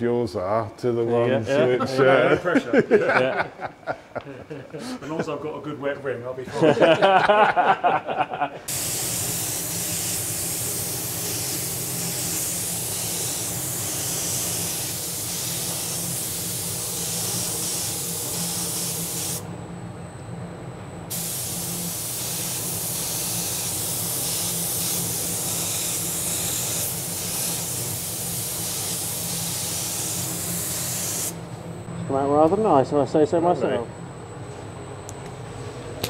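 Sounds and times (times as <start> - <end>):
spray gun hissing: 8.7 - 19.4, 21.1 - 31.4.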